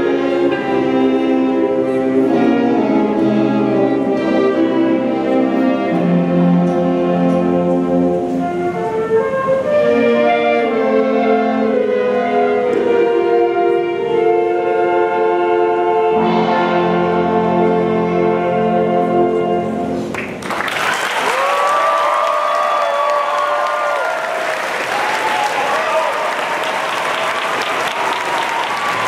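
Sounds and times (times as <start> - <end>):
concert band playing sustained chords: 0.0 - 20.2
audience applause: 20.1 - 29.0
audience cheering: 20.4 - 29.0.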